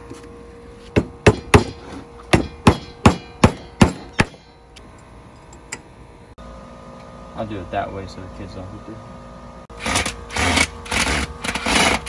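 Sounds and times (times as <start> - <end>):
hammer striking wood: 0.9 - 4.5.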